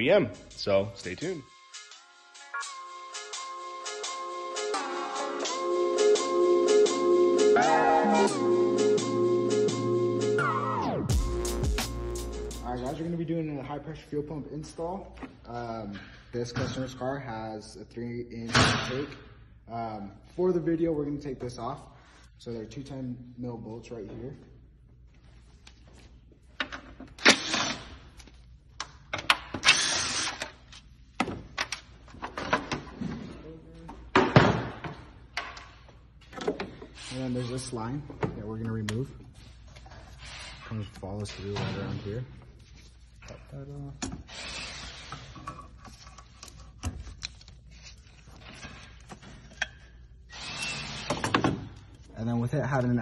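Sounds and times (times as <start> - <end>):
tool whirring: 29.5 - 30.6, 50.3 - 51.4.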